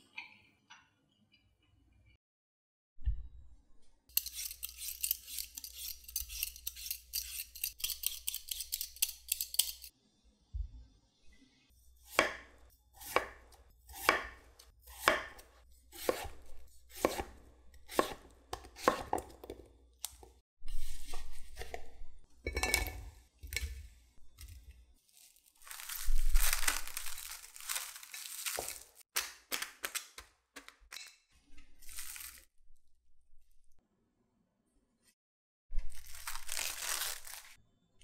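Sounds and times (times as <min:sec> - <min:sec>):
knife cutting on wooden board: 0:13.0 - 0:19.2
cling wrap crackling: 0:25.0 - 0:30.2, 0:31.8 - 0:32.5, 0:35.8 - 0:37.6.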